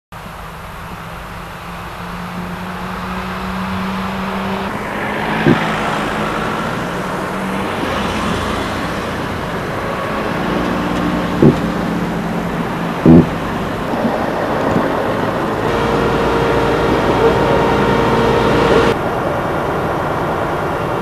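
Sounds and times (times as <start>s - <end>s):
steady engine hum: 0.1s - 21.0s
vehicle passing by: 0.8s - 21.0s
short knocks: 5.4s - 5.7s.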